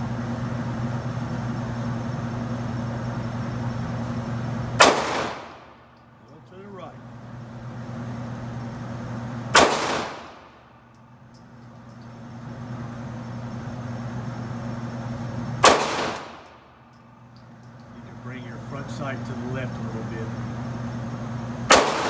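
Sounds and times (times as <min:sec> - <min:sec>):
low hum: 0:00.0 - 0:22.0
handgun shots echoing indoors: 0:04.8 - 0:05.8, 0:09.5 - 0:11.0, 0:15.6 - 0:16.9, 0:21.7 - 0:22.0.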